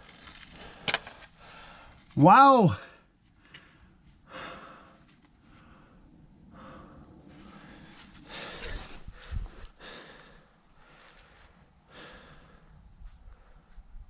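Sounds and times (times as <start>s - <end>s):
person breathing heavily: 0.6s - 2.0s, 2.9s - 13.8s.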